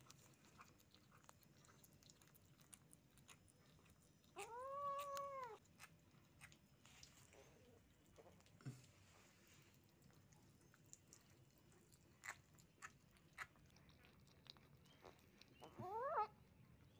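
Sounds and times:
kittens chewing and smacking: 0.0 - 16.9
kitten meowing: 4.4 - 5.6, 15.6 - 16.4.

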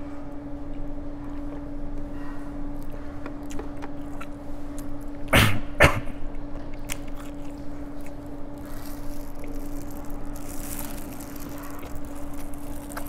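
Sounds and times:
man coughing hard: 5.3 - 6.2.

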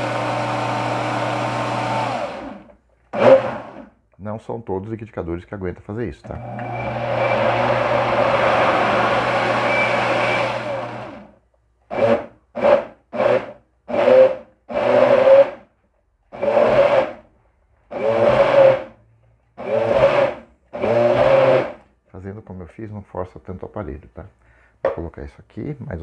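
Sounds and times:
blender running: 0.0 - 3.9, 6.3 - 11.3, 11.9 - 15.7, 16.3 - 17.3, 17.9 - 19.0, 19.6 - 21.8.

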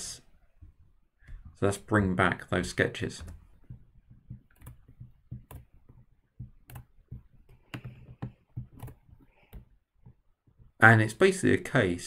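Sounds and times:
mouse and keyboard clicks: 6.6 - 10.7.

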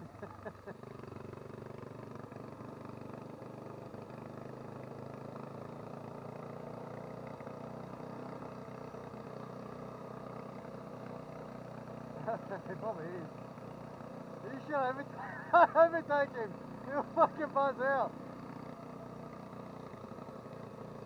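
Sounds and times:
motorcycle engine running: 0.0 - 21.0
road and wind noise: 0.0 - 21.0.

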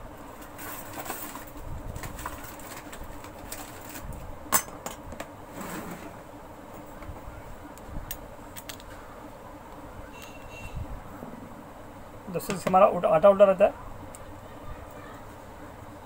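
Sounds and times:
metal parts clicking and knocking: 8.6 - 8.9.

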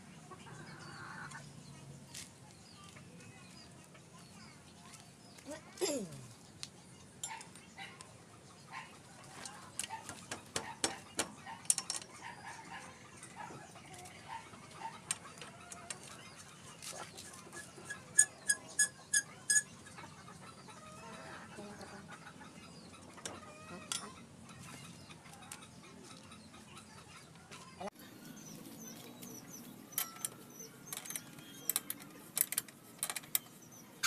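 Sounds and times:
hand tools clinking on metal: 11.6 - 12.1, 29.9 - 33.6
sharp metallic clicks: 29.9 - 33.6.

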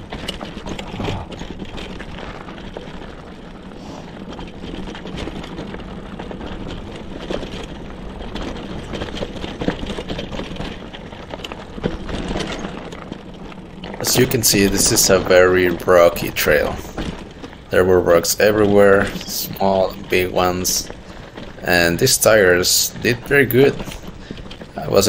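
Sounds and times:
bike knocking and rattling on rocks: 0.0 - 25.0
bike tyres rolling on gravel: 0.0 - 25.0.

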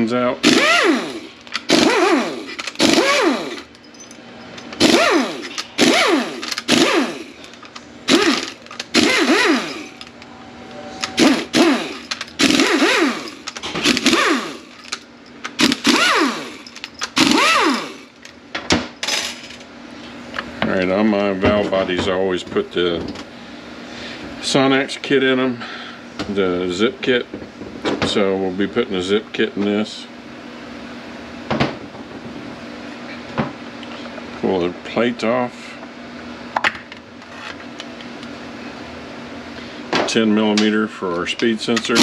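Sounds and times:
metallic clinks and rattles: 3.6 - 4.8, 11.7 - 18.2.

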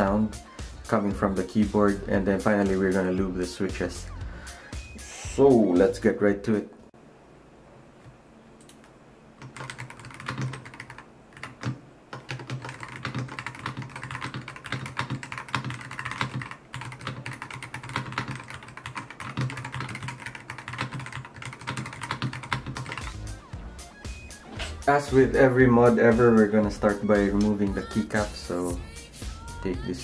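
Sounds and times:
mechanical keyboard typing: 8.6 - 23.1.

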